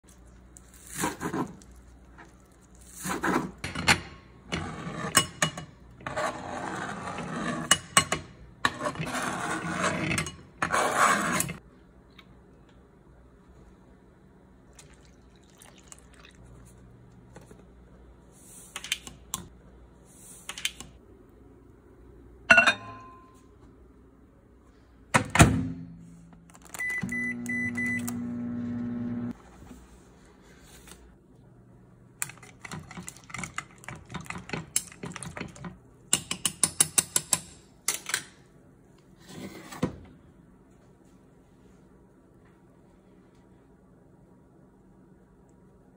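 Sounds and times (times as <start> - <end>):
microwave oven humming: 21.0 - 29.6
short keypad beep: 26.8 - 28.1.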